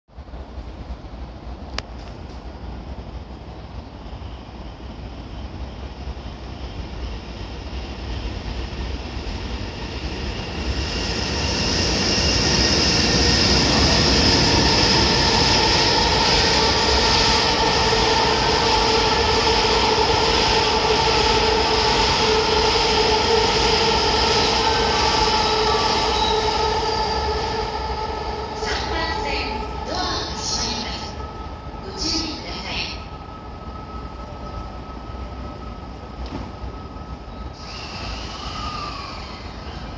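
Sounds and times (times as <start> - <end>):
train wheel and rail noise: 0.1 - 39.9
high wheel squeal: 24.4 - 27.9, 37.2 - 39.9.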